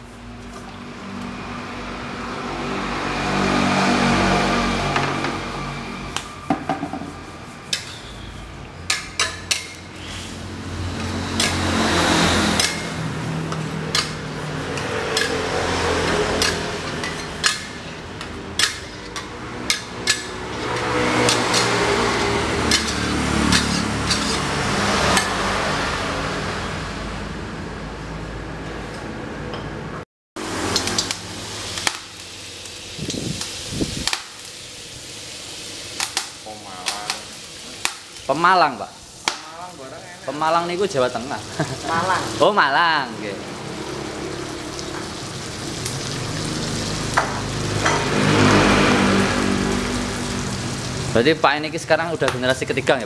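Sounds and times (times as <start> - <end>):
hissing boiling wok: 3.2 - 25.4, 30.4 - 53.0
metal spatula scraping wok: 4.9 - 25.4.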